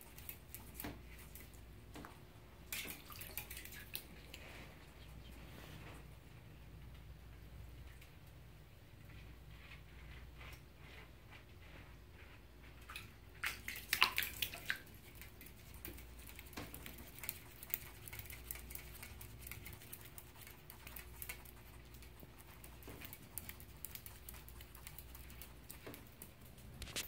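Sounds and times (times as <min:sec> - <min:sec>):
light splashing in bathwater: 0:00.0 - 0:05.0, 0:12.7 - 0:27.0
clicks and scratches: 0:13.7 - 0:27.0.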